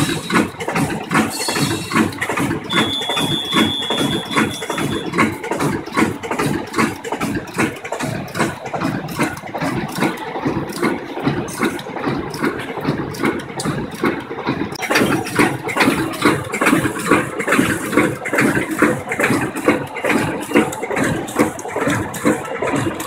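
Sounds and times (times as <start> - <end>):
bag making machine clattering: 0.0 - 23.0
high steady tone: 2.7 - 5.2.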